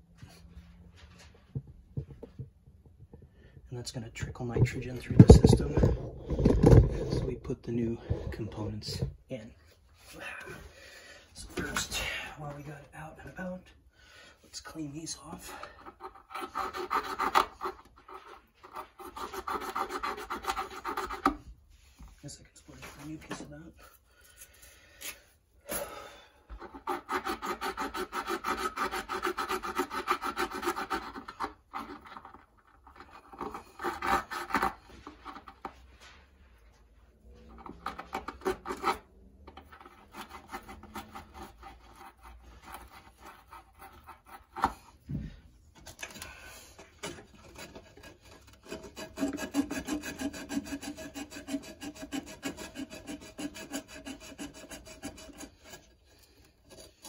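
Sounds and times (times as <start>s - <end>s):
copper tubing scrubbed with abrasive: 3.8s - 9.2s, 26.5s - 45.0s, 46.8s - 57.0s.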